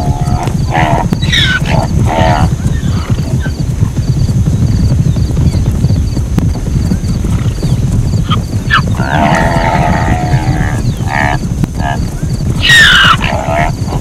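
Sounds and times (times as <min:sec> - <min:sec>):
zebra yelping calls: 0:00.0 - 0:03.5, 0:12.6 - 0:14.0
dense low rumble: 0:00.0 - 0:14.0
zebra braying: 0:08.2 - 0:14.0.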